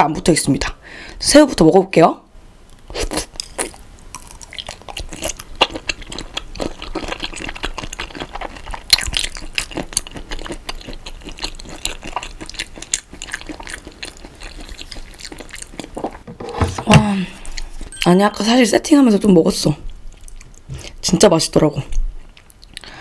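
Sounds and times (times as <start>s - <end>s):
wet chewing of shrimp: 2.9s - 16.3s, 19.9s - 21.0s.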